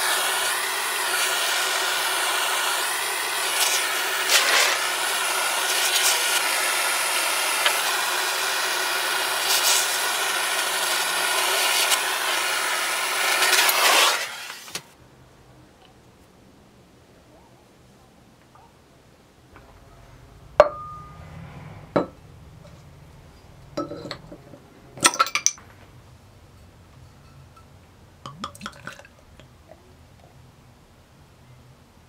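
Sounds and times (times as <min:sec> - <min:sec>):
heating tool hissing rush: 0:00.0 - 0:14.9.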